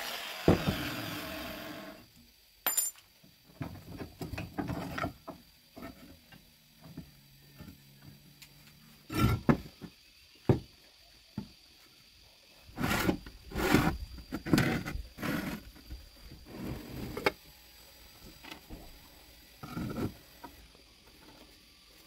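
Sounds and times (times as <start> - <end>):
steel pieces knocking and clattering: 2.6 - 3.0.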